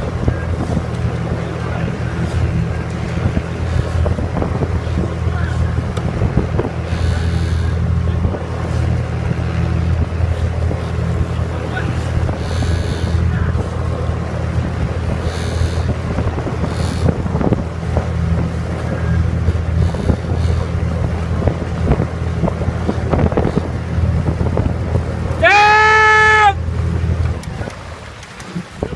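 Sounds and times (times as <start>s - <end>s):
outboard motor running: 0.0s - 28.9s
water slapping: 0.0s - 28.9s
wind on microphone: 0.0s - 28.9s.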